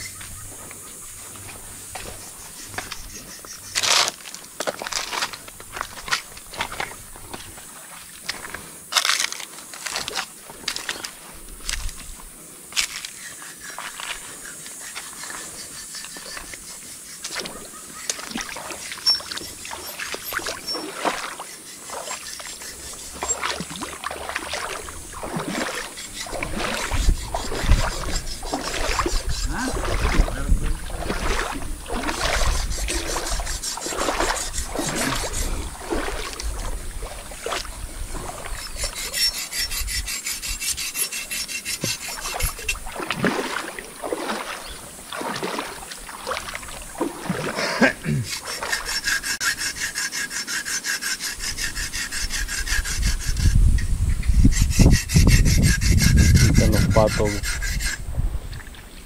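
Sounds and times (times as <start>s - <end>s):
river water splashing: 0.0s - 53.5s
rubbing and knocking on microphone: 53.4s - 57.7s.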